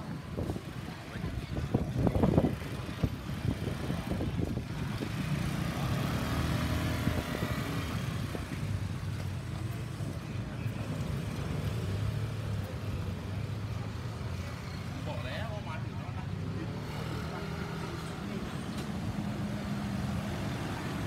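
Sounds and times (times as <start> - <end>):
scooter and tuk-tuk engines: 0.0 - 21.0.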